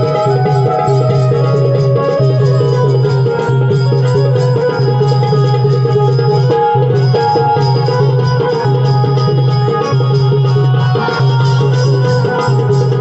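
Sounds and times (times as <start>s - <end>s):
drum-led folk music: 0.0s - 13.0s.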